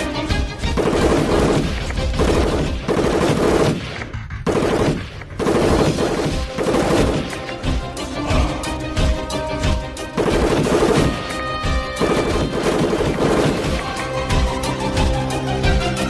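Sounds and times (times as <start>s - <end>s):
background music: 0.0s - 16.0s
automatic gunfire bursts: 0.7s - 3.9s, 4.5s - 7.4s, 10.2s - 11.4s, 12.0s - 14.0s.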